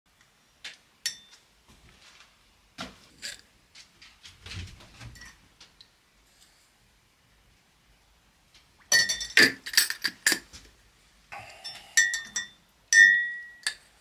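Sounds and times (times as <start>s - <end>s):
ceramic mug clinking: 8.9s - 10.0s, 11.5s - 13.8s.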